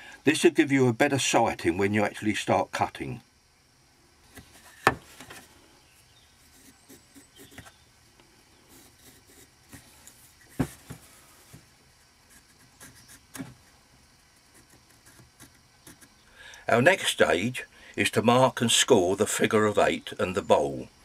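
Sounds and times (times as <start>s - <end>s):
pencil scratching on wood: 6.4s - 7.8s, 8.7s - 9.9s, 12.3s - 13.5s, 14.5s - 16.2s.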